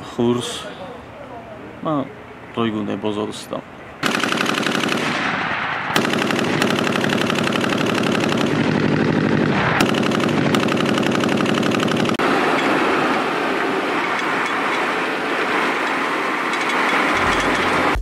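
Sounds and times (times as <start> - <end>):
machine gun automatic fire: 4.0 - 12.2.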